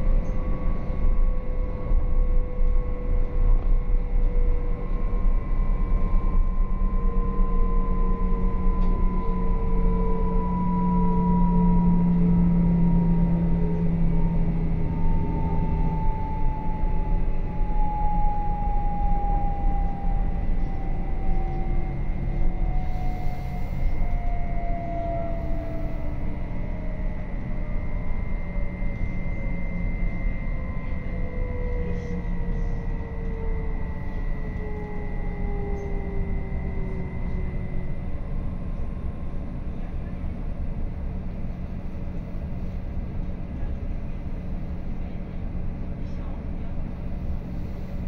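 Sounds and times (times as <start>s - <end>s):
electric traction drive whine: 0.0s - 48.0s.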